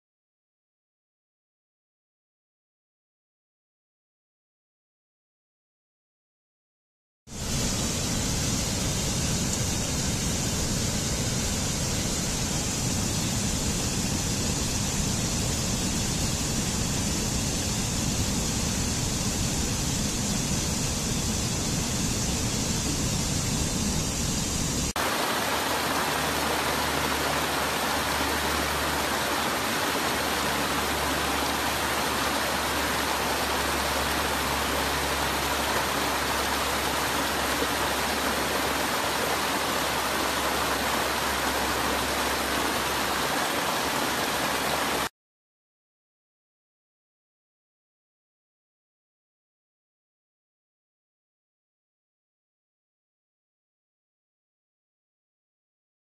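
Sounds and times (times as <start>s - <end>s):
even rush of water: 7.3s - 45.1s
water rushing over rocks: 24.9s - 45.1s.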